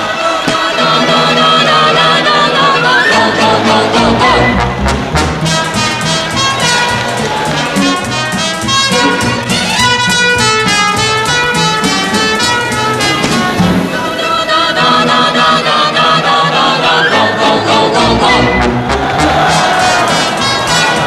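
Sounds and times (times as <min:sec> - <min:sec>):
lively brass cartoon music: 0:00.1 - 0:21.0
trumpet playing quick run: 0:04.1 - 0:14.7, 0:18.2 - 0:21.0.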